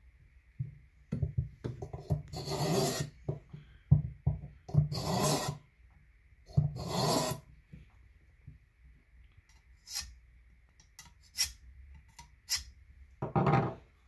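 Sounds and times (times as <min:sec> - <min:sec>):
knocks and scrapes on wooden tabletop: 0:00.6 - 0:05.6, 0:06.5 - 0:07.9, 0:13.2 - 0:13.9
blade rasping through sharpener: 0:02.3 - 0:03.2, 0:04.9 - 0:05.6, 0:06.8 - 0:07.4, 0:09.8 - 0:10.1, 0:11.2 - 0:11.6, 0:12.5 - 0:12.7.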